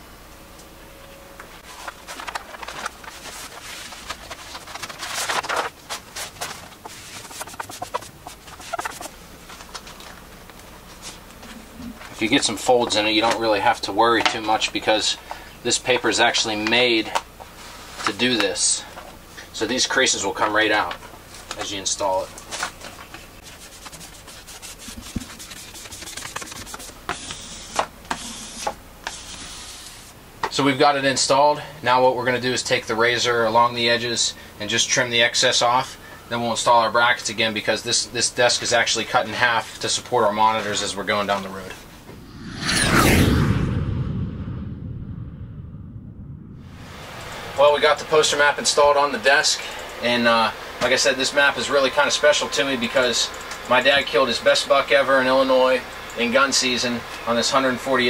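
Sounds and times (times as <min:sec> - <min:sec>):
stiff paper crinkling: 0:01.6 - 0:10.0, 0:23.4 - 0:27.0.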